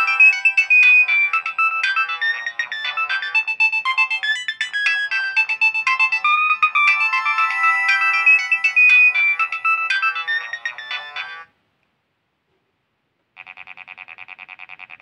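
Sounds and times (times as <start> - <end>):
electronic ringtone melody: 0.0 - 11.5
fast pulsing ringtone: 0.0 - 11.5.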